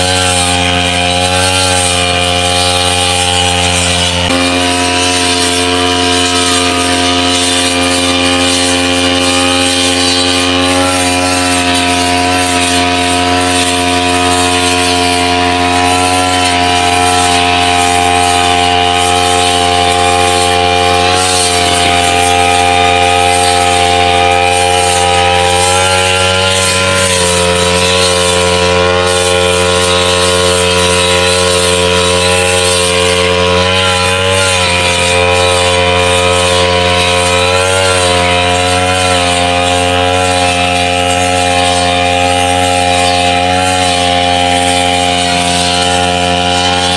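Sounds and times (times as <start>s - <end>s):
blade cutting thick grass: 0.0s - 46.9s
brush cutter engine running: 0.0s - 46.9s.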